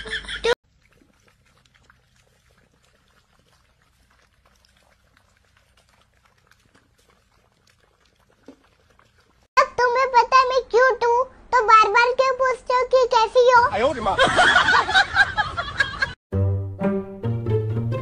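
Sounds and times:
small water splashes: 0.6s - 9.6s
puppies lapping water: 0.6s - 10.5s.

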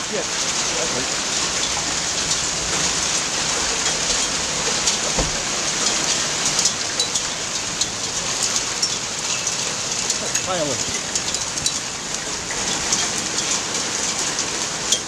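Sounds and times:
hail pelting down: 0.0s - 15.0s
hailstones cracking: 0.0s - 15.0s
dull thump: 5.2s - 5.6s.

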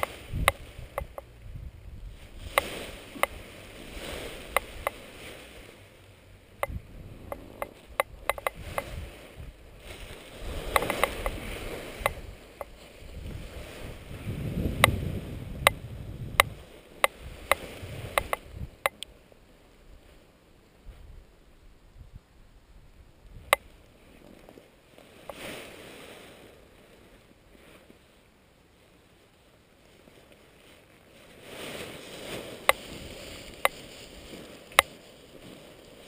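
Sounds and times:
sharp clicks and knocks: 0.0s - 1.3s, 6.6s - 8.9s, 10.7s - 11.4s, 16.4s - 19.1s
nylon wing rustling and crumpling: 28.8s - 36.0s.

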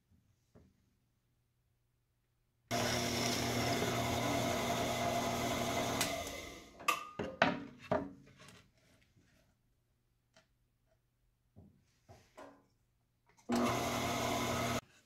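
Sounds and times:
drill press cutting into wood: 2.7s - 6.7s, 13.5s - 14.8s.

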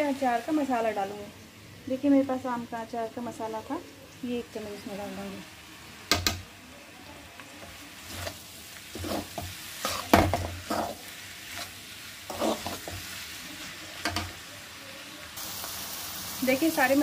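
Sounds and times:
oil sizzling: 0.0s - 17.0s
metal spoon scraping a pan: 8.0s - 13.2s.

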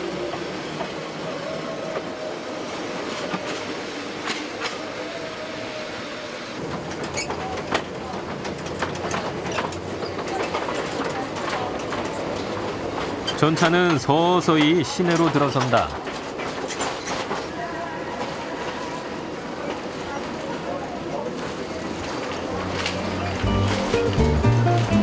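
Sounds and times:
wheels clicking over rail joints: 0.0s - 5.1s, 6.6s - 25.0s
electric trolley running: 15.2s - 25.0s.

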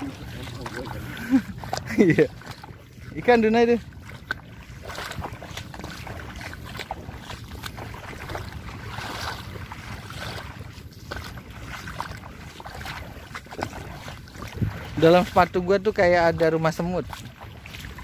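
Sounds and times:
wind on microphone: 0.0s - 16.4s
footsteps wading through water: 0.0s - 18.0s.

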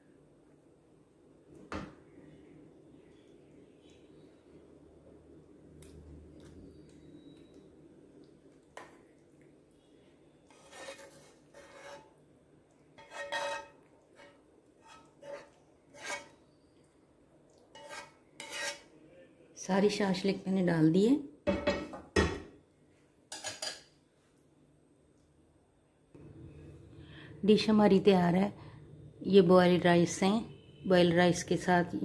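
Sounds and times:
spatula scraping a frying pan: 10.4s - 12.2s, 13.0s - 16.5s, 17.7s - 18.9s.

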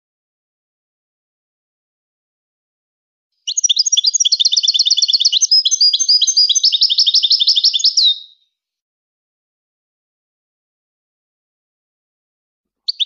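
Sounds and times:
bird twittering song: 3.4s - 8.4s.

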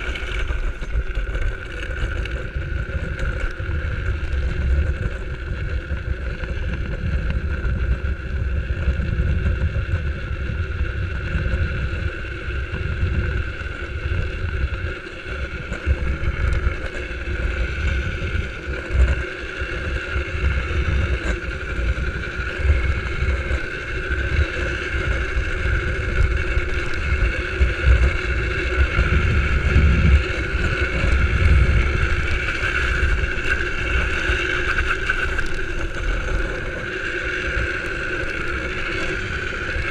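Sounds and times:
hard wheels rolling on asphalt: 0.0s - 39.9s
wind buffeting microphone: 0.0s - 39.9s.

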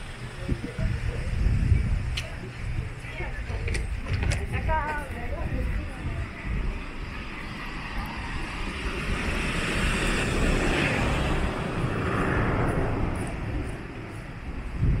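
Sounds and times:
car passing close by: 8.0s - 13.6s.

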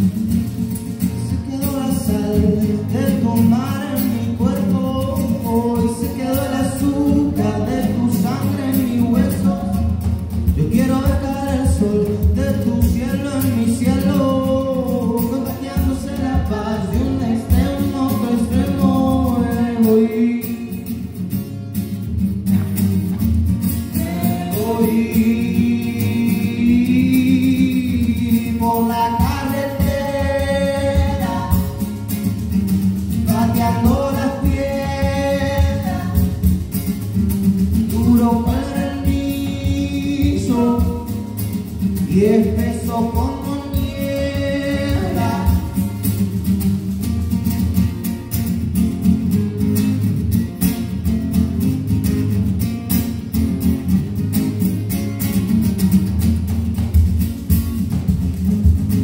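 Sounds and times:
strummed acoustic guitar: 0.0s - 59.0s
person singing: 24.0s - 31.8s, 33.3s - 36.4s, 42.2s - 45.8s.

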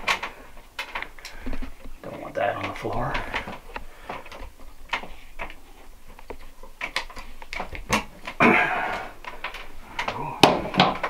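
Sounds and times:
wire strippers clicking and snipping: 0.0s - 11.0s.

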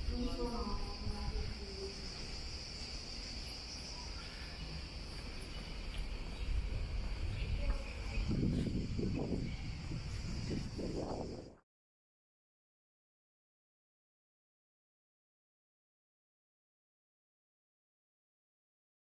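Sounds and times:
insects chorus: 0.0s - 11.6s
low rumbling noise: 0.0s - 11.6s.

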